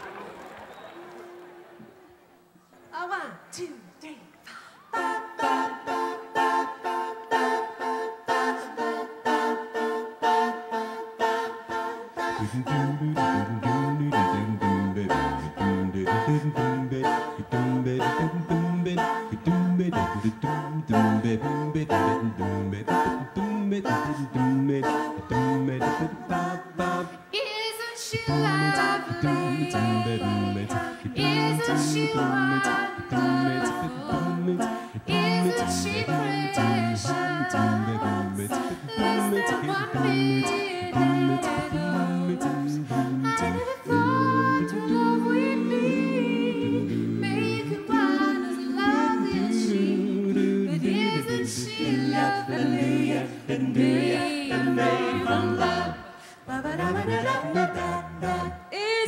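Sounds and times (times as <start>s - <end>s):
a cappella group singing: 4.5s - 59.0s
low voice singing bass line: 12.4s - 27.0s
woman singing lead: 27.2s - 42.6s, 54.0s - 59.0s.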